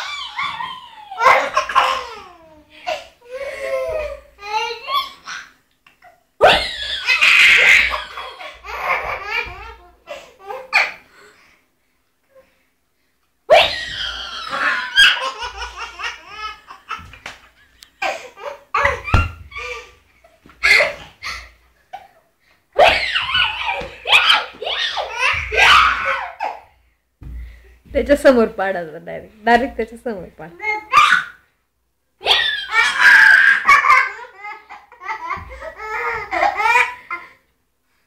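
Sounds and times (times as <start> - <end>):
baby laughing: 0.0 - 11.0, 13.5 - 19.9, 20.5 - 22.2, 22.8 - 26.7, 32.2 - 37.4.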